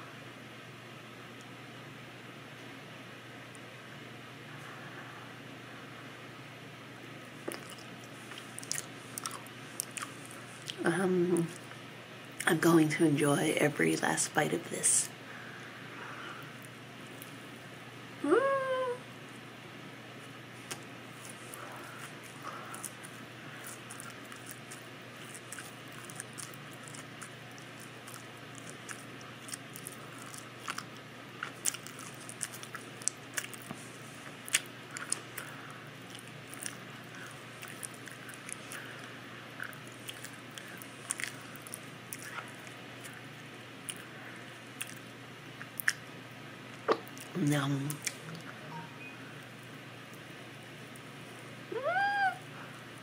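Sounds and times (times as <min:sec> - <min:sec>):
open-mouthed chewing: 0:07.4 - 0:10.8, 0:20.6 - 0:46.1.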